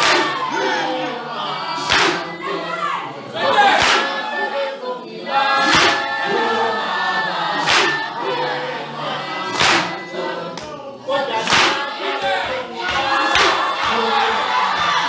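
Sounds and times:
group of voices singing: 0:00.0 - 0:15.0
loud sharp beat: 0:05.7 - 0:06.1, 0:09.6 - 0:10.0.

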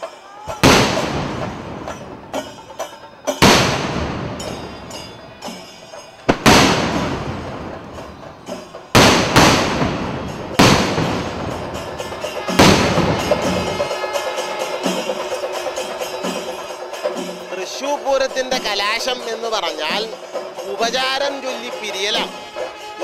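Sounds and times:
firework shells exploding: 0:00.5 - 0:02.7, 0:03.3 - 0:14.0.

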